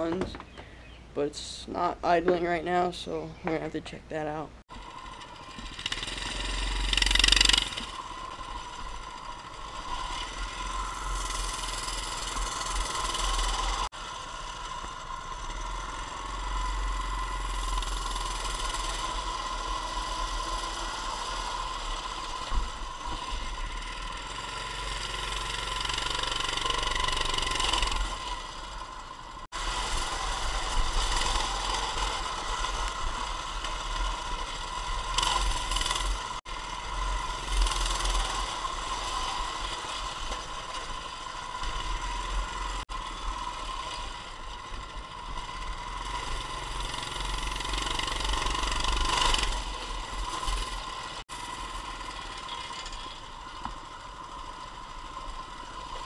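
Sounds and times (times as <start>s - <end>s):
person talking: 0.0s - 0.4s, 1.1s - 4.6s
mini bike engine running: 4.2s - 56.0s.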